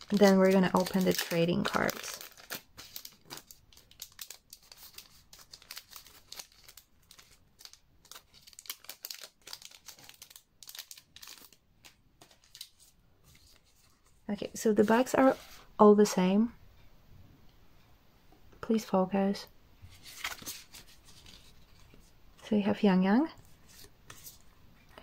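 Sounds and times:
plastic packaging crinkling and tearing: 0.0s - 13.6s, 20.0s - 21.9s.

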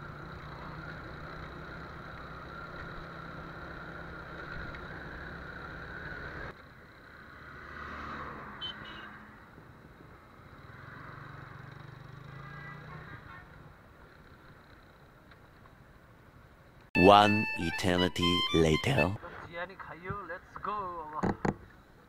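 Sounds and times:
truck passing: 7.1s - 9.4s
truck horn beep: 17.0s - 19.2s.

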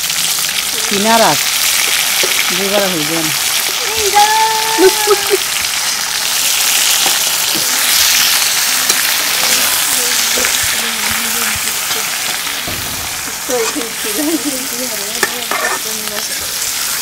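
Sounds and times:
meat sizzling in hot oil: 0.0s - 17.0s
metal spatula scraping pan: 6.9s - 17.0s.

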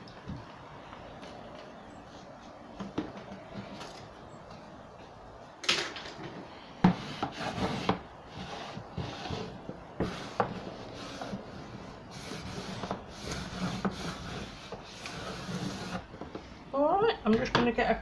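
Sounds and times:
wallpaper scraping swishes: 7.0s - 16.1s.

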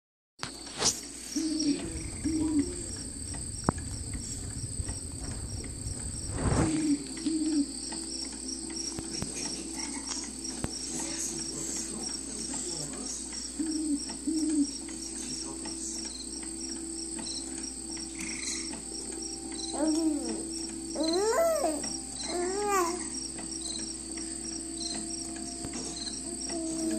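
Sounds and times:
electronic cricket chirping: 0.4s - 26.9s
soft owl-like hoots: 1.3s - 8.1s, 13.4s - 15.2s, 19.5s - 23.2s, 26.0s - 26.9s
handling rumble: 1.4s - 7.6s.

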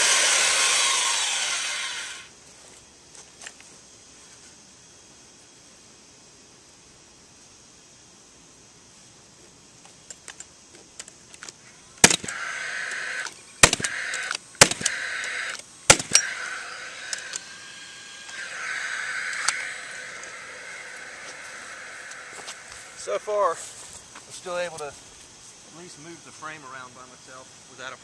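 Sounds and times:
nail gun fan whirring: 0.0s - 2.3s, 12.0s - 23.1s
tool clicks: 10.1s - 17.6s, 18.2s - 20.4s
nail gun shots: 12.0s - 17.4s.

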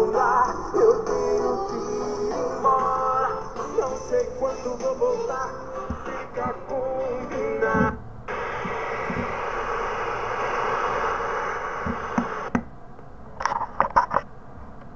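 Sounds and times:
song from speaker: 0.0s - 8.0s
speaker static hiss: 0.0s - 14.9s.

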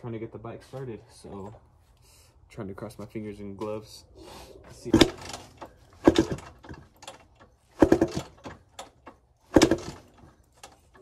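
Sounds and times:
dirt bike kick-start clatter: 4.9s - 11.0s.

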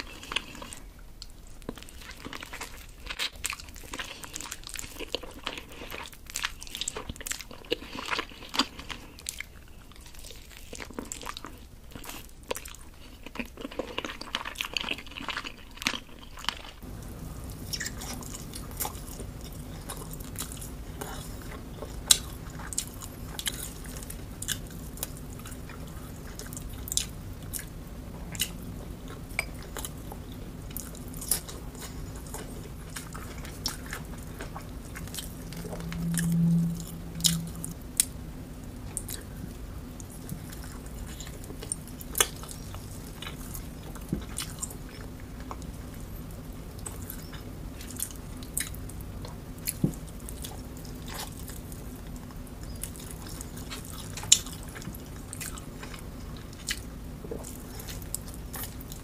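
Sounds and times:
chewing with wet smacks: 0.0s - 36.6s, 38.8s - 59.0s
steady low hum: 16.7s - 59.0s.

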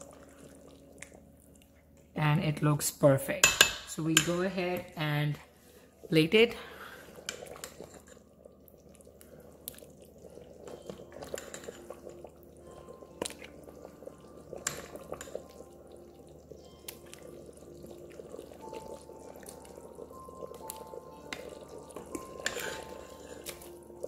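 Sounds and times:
ladle clinking against pot: 11.3s - 11.8s.

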